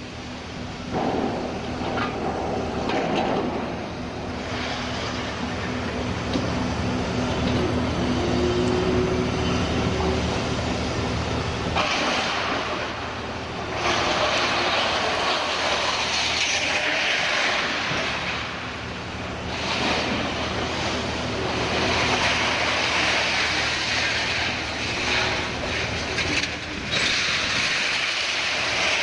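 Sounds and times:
diesel engine droning: 0.0s - 15.6s.

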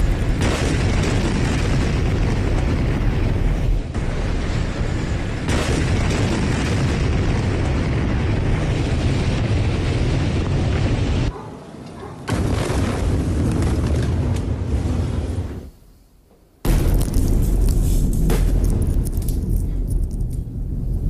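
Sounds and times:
explosion rumble: 0.0s - 11.3s, 16.6s - 21.0s.

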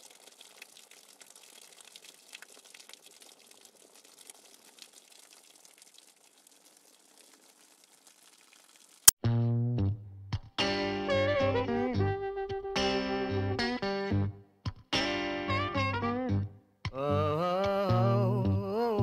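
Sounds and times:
light rain patter: 0.0s - 9.1s.

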